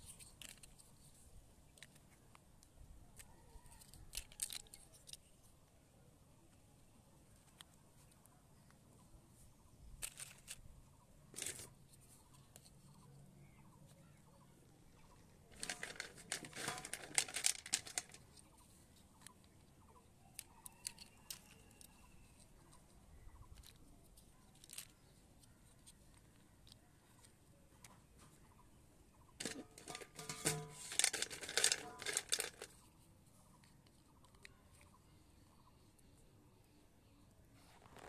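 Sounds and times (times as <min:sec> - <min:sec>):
plastic blocks clicking and knocking: 0:00.0 - 0:01.1, 0:01.7 - 0:05.4, 0:10.0 - 0:10.6, 0:11.3 - 0:11.8, 0:15.5 - 0:19.7, 0:20.3 - 0:27.4, 0:29.4 - 0:32.8.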